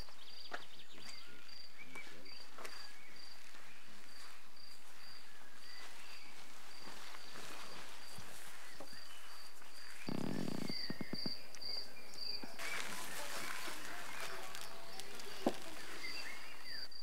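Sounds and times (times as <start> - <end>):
faint bird-like chirps and clicks: 0.0 - 3.7, 8.7 - 13.4
cricket chirping: 0.0 - 17.0.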